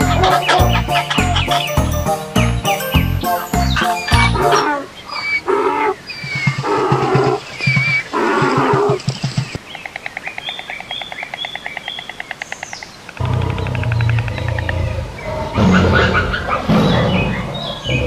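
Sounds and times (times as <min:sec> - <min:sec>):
bird chirps: 0:00.0 - 0:18.0
animal roaring calls: 0:04.4 - 0:07.5, 0:13.2 - 0:18.0
deep low rumbling: 0:13.2 - 0:18.0.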